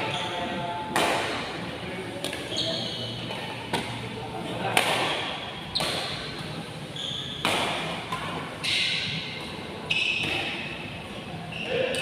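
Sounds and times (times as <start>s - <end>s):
rackets hitting shuttlecock: 0.9s - 1.5s, 2.2s - 2.5s, 3.3s - 4.0s, 4.7s - 6.4s, 7.4s - 10.8s.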